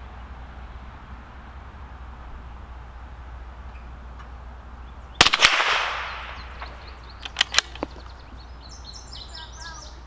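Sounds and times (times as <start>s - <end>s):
rifle shot with echo: 5.2s - 7.9s
rifle bolt clicks: 7.2s - 8.0s.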